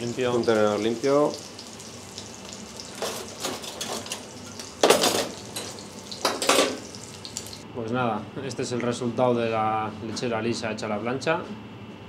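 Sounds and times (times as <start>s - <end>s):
meat sizzling on a griddle: 0.0s - 7.6s.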